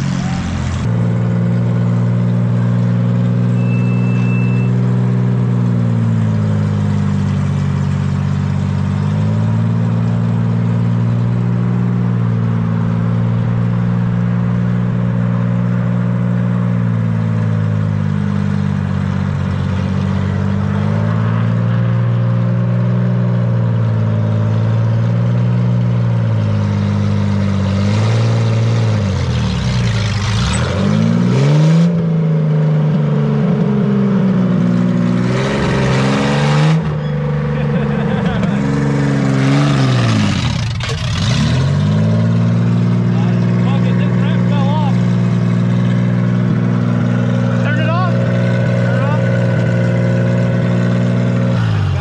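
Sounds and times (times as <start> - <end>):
car engine idling unevenly: 0.0 - 20.8, 36.8 - 52.0.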